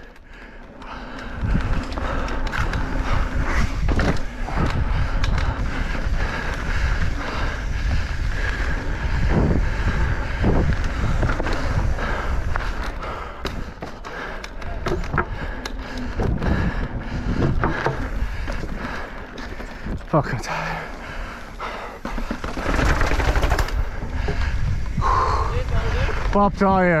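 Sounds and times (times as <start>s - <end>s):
bike knocking and rattling: 0.0s - 27.0s
bike tyres rumbling on concrete: 0.0s - 27.0s
wind buffeting microphone: 0.4s - 27.0s.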